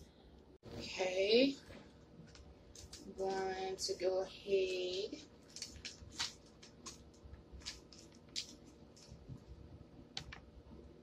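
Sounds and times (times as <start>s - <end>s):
plastic package crinkling: 2.2s - 3.4s, 5.1s - 9.3s.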